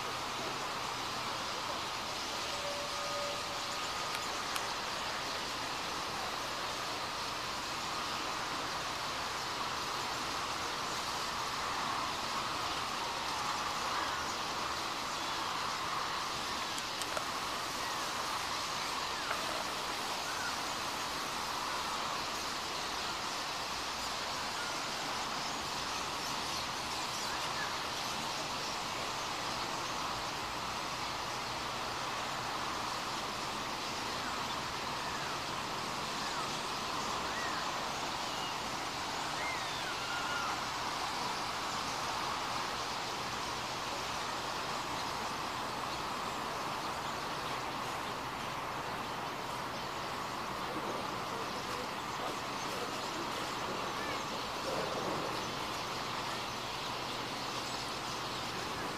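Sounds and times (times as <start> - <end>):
flock of birds chattering: 0.0 - 58.9.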